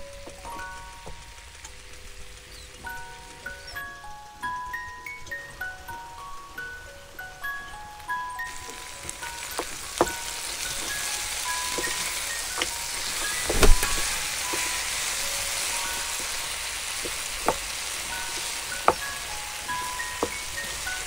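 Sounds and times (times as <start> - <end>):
mallet percussion music: 0.0 - 21.0
meat sizzling in a pan: 8.0 - 21.0
wooden spoon knocking on pan: 8.5 - 21.0.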